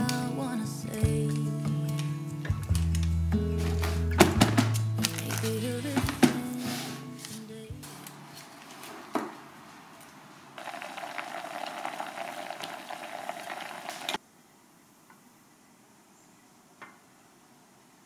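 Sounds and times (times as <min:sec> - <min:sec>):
syrup bubbling in saucepan: 0:10.6 - 0:14.2.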